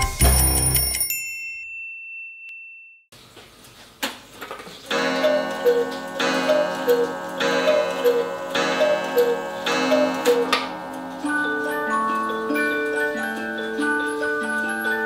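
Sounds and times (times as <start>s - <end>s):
clock mechanism click: 4.9s - 13.5s
clock ticking: 4.9s - 15.0s
cuckoo clock calling: 4.9s - 15.0s.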